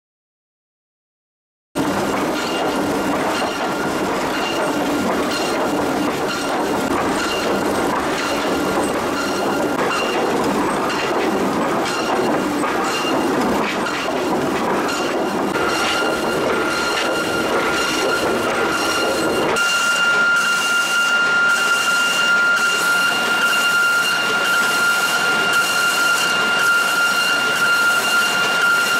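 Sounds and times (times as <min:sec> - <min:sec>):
boards clacking and knocking: 0:02.0 - 0:19.6
planer machine whine: 0:14.9 - 0:28.9.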